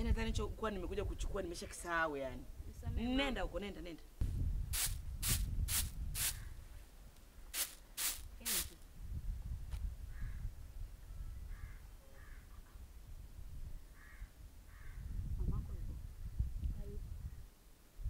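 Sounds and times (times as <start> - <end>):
crows cawing faintly: 6.3 - 6.8, 10.1 - 12.8, 13.9 - 15.2.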